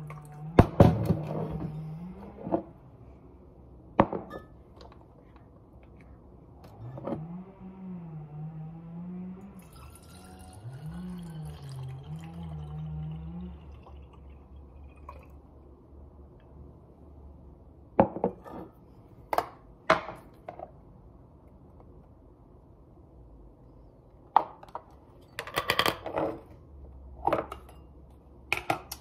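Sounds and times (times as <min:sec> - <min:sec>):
low wavering hum: 0:07.2 - 0:15.7
liquid pouring: 0:09.6 - 0:15.6.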